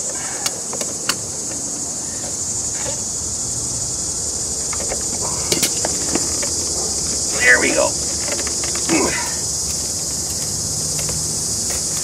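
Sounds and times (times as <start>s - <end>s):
insects chorus: 0.0s - 12.0s.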